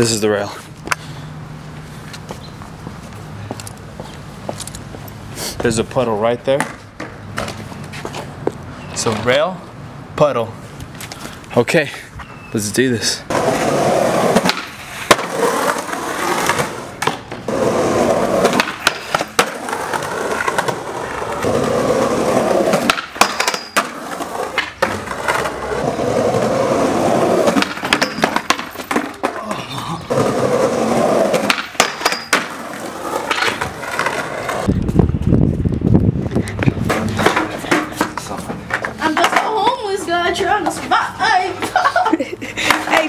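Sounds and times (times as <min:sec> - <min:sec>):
skateboard wheels rolling on concrete: 0:00.0 - 0:43.0
skateboard clacking on ground: 0:06.5 - 0:08.3, 0:13.3 - 0:34.8, 0:36.3 - 0:41.8, 0:42.6 - 0:43.0.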